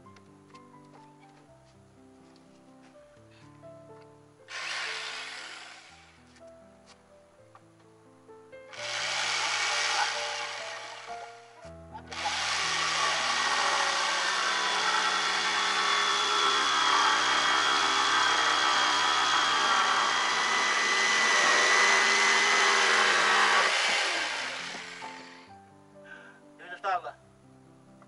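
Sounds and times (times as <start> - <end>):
background music with low notes: 0.0 - 14.6, 23.7 - 28.0
power tool whining: 4.5 - 6.2, 8.7 - 25.5.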